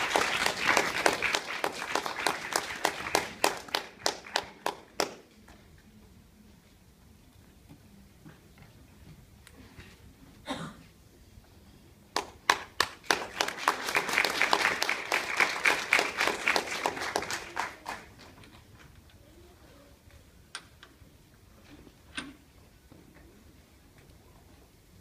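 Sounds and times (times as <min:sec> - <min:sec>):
audience applauding: 0:00.0 - 0:05.2, 0:12.2 - 0:18.4.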